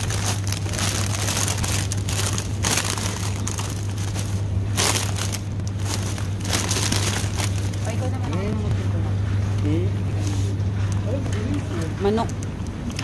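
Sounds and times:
plastic crinkling: 0:00.0 - 0:08.4
rustling handling noise: 0:00.0 - 0:08.8
steady low hum: 0:00.0 - 0:13.0.

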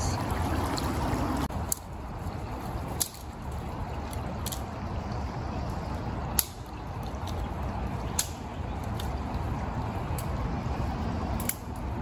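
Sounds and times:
creek water running: 0:00.0 - 0:12.0
sharp clicks or snaps: 0:11.4 - 0:11.8.

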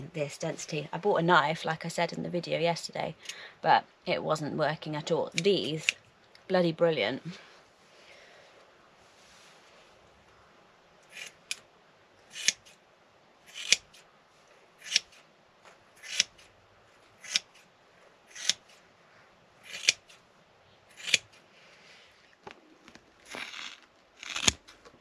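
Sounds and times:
scissors cutting foam: 0:11.1 - 0:11.6, 0:12.3 - 0:12.8, 0:13.5 - 0:14.0, 0:14.8 - 0:15.2, 0:16.0 - 0:16.5, 0:17.2 - 0:17.6, 0:18.3 - 0:18.8, 0:19.6 - 0:20.2, 0:20.9 - 0:21.4, 0:23.2 - 0:24.8.

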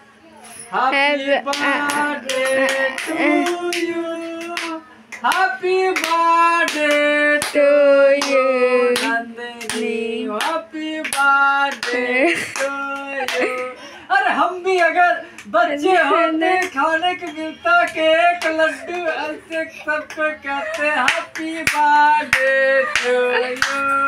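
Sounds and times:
voices singing: 0:00.8 - 0:24.0
hands clapping in time: 0:01.5 - 0:07.6, 0:09.0 - 0:13.7, 0:16.6 - 0:24.0.

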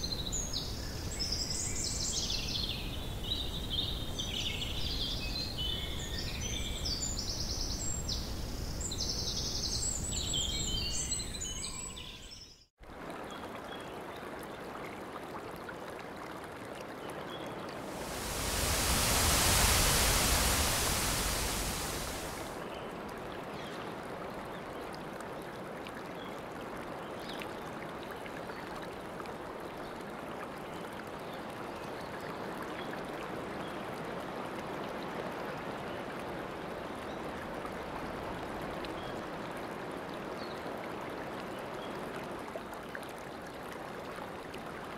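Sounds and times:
rushing running water: 0:17.6 - 0:22.7
birds chirping: 0:17.9 - 0:22.5.

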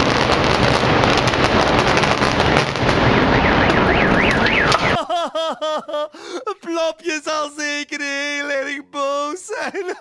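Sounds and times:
building collapsing crashing rumble: 0:00.0 - 0:03.8
car alarm warbling: 0:02.2 - 0:05.0
man wailing in sobs: 0:05.0 - 0:07.1, 0:09.3 - 0:10.0.

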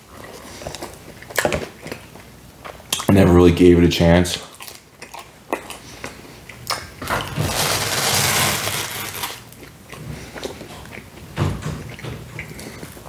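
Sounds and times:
chewing with mouth clicks: 0:00.0 - 0:03.1, 0:04.3 - 0:07.0, 0:09.2 - 0:13.0
pizza scraping across cardboard: 0:07.4 - 0:09.3.

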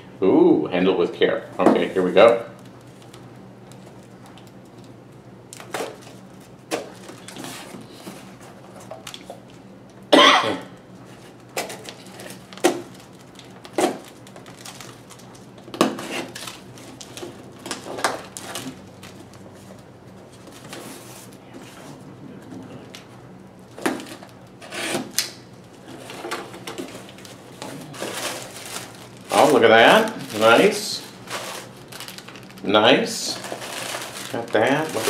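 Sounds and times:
packing tape ripping from cardboard: 0:11.5 - 0:19.1, 0:23.8 - 0:25.4, 0:26.0 - 0:32.6, 0:33.4 - 0:35.0.

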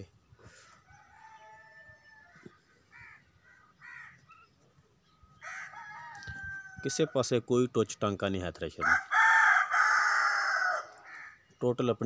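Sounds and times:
roosters crowing: 0:00.5 - 0:04.3, 0:05.3 - 0:07.4, 0:08.8 - 0:11.4.

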